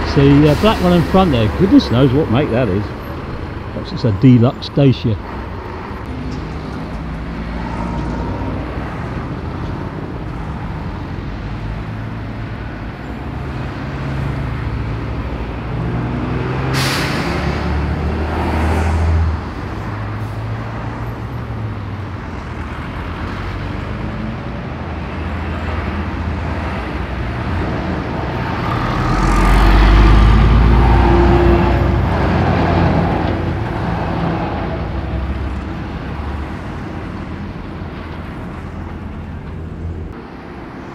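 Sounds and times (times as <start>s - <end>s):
heavy diesel lorry rumble: 0.0s - 40.8s
road traffic passing: 0.0s - 40.9s
air brake hiss: 16.8s - 17.4s.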